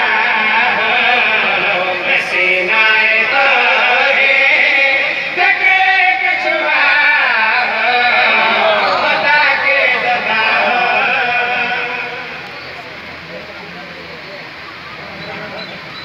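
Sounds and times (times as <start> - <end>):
man chanting over loudspeaker: 0.0 - 12.8.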